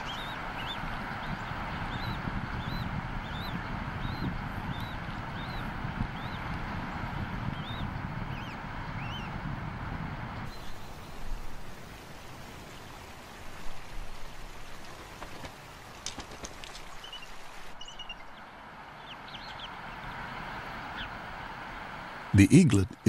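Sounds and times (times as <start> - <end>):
eagles chirping: 0.0 - 6.5, 17.0 - 18.4
steady hiss: 10.4 - 19.0.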